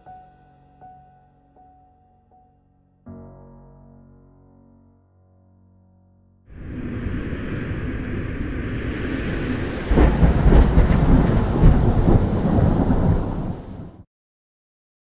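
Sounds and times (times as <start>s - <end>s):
loud rushing noise: 6.5s - 13.9s
low rumble and crackle: 6.5s - 14.0s.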